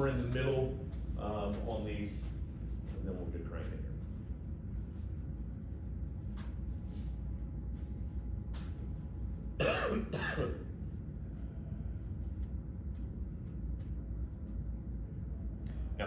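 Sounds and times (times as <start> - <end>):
low room hum: 0.0 - 16.0
man coughing: 9.6 - 10.7.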